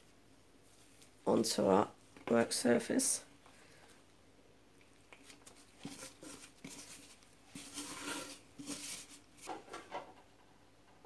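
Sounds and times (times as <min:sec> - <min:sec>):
rustling: 0:00.0 - 0:02.4, 0:04.8 - 0:10.1
dough scraping out of bowl: 0:05.8 - 0:09.6.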